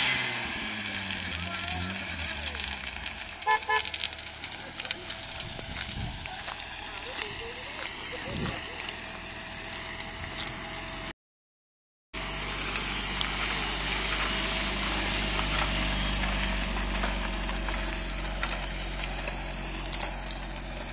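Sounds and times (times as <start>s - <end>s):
car engine idling: 0.0s - 11.1s, 12.2s - 20.9s.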